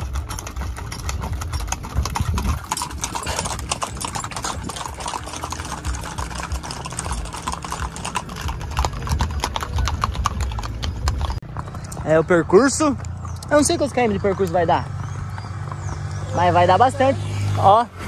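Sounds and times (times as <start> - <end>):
hooves clip-clopping on asphalt: 0.0 - 17.8.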